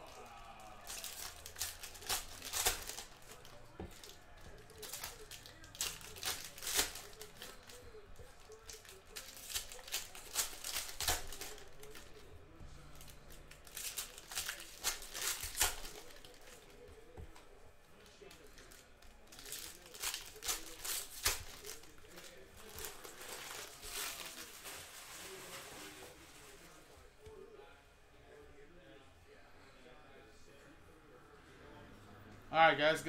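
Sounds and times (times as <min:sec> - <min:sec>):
foil wrappers tearing and crinkling: 0:00.8 - 0:16.7, 0:18.0 - 0:26.8.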